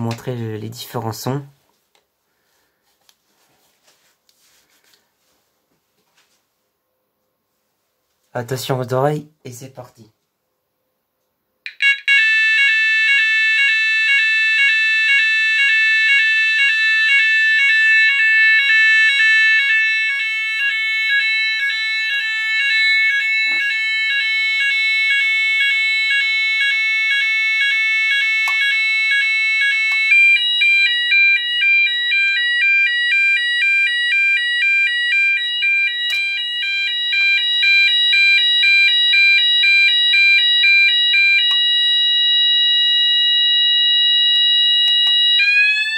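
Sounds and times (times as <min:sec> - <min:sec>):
electronic fire alarm tone: 0:11.7 - 0:45.9.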